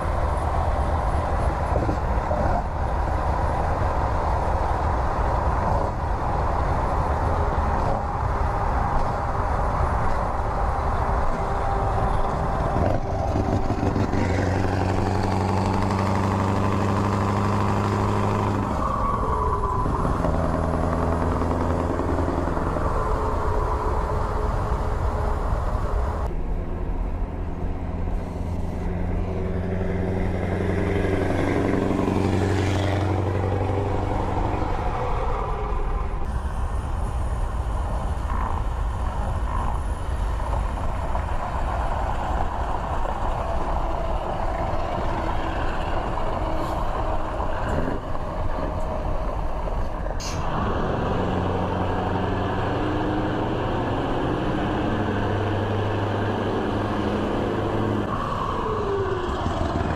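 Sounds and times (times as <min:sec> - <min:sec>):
rushing wind: 0:00.0 - 0:59.9
truck exhaust drone: 0:00.0 - 0:59.9.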